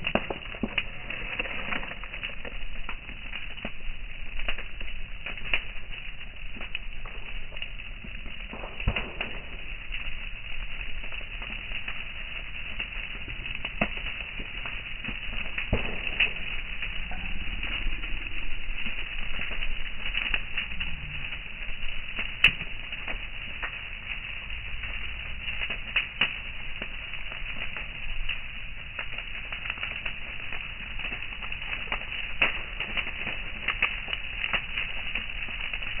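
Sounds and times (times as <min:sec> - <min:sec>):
brush fire crackling and popping: 0:00.0 - 0:36.0
sharp pops: 0:08.5 - 0:09.7, 0:15.7 - 0:17.8.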